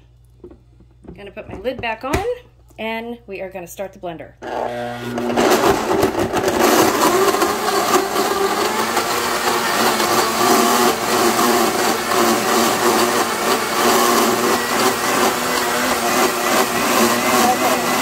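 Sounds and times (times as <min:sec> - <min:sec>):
blender running: 0:04.4 - 0:18.0.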